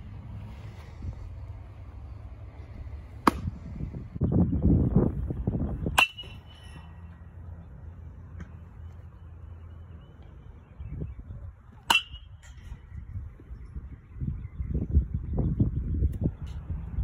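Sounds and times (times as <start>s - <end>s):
baseball bat hitting ball: 3.2s - 3.7s, 5.9s - 6.7s, 11.8s - 12.6s
metallic ping: 6.0s - 6.7s, 11.9s - 12.4s.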